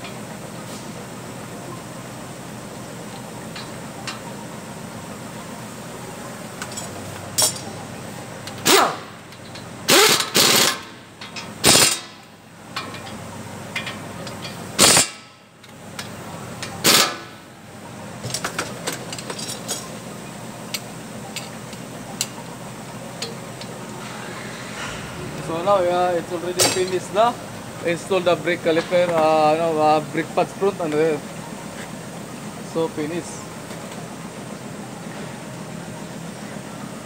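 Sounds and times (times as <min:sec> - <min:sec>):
workshop hum: 0:00.0 - 0:37.0
air impact wrench rattling: 0:08.6 - 0:12.2, 0:13.8 - 0:15.2.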